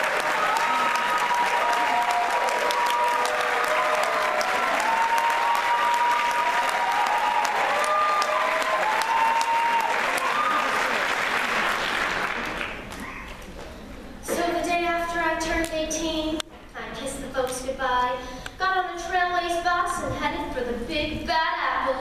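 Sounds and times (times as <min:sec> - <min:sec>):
crowd whooping: 0:00.0 - 0:11.6
audience applauding: 0:00.0 - 0:13.4.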